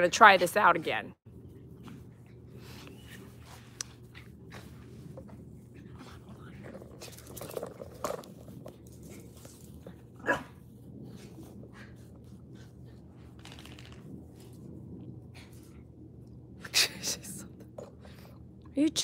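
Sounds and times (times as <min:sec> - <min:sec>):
small dogs playing: 0:01.4 - 0:16.3.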